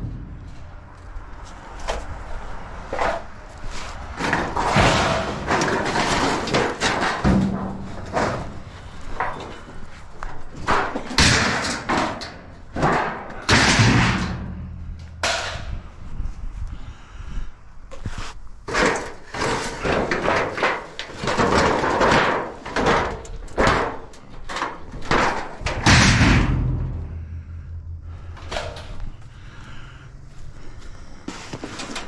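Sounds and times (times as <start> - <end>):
scrap metal clanking: 2.9 - 15.8, 18.7 - 30.0.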